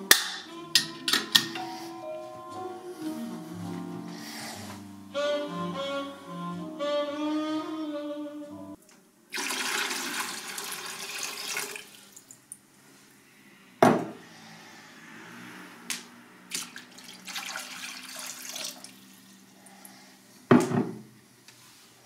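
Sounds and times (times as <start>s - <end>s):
water rushing: 16.5s - 19.4s.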